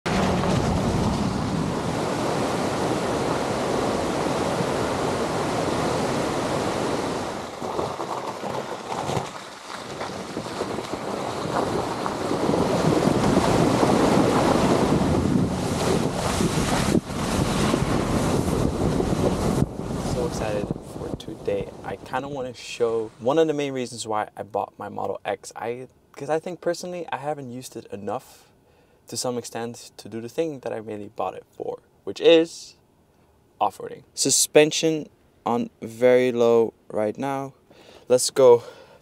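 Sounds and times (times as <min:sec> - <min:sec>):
wind on microphone: 0:00.1 - 0:22.4.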